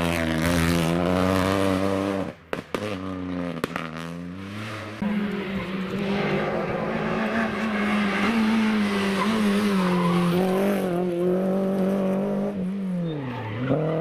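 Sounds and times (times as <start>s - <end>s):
rally car engine at high revs: 0.0s - 14.0s
tyre squeal and skidding: 4.7s - 11.2s, 12.8s - 14.0s.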